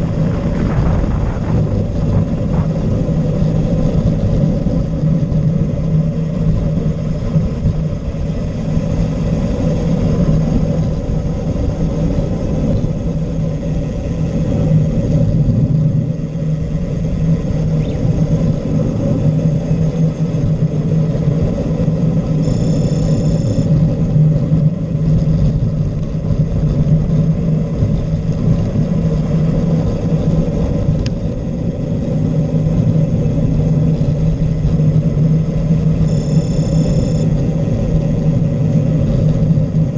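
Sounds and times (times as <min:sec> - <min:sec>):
car engine running: 0:00.0 - 0:39.9
road and wind noise: 0:00.0 - 0:39.9
short high-pitched tone: 0:22.4 - 0:23.7, 0:36.1 - 0:37.3.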